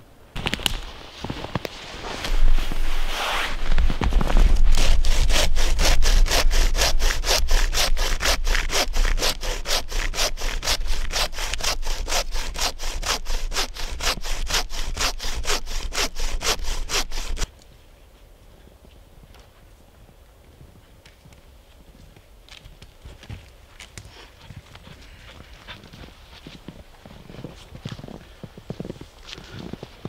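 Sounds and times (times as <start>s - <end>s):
bow saw cutting wood: 2.3s - 17.5s.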